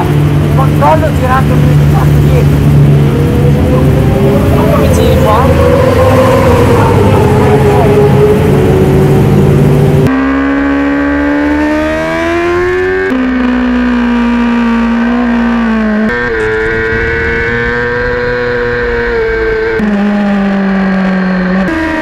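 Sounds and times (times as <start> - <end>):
rushing noise: 0.0 - 10.1, 15.9 - 20.4
racing motorcycle engine: 0.0 - 22.0.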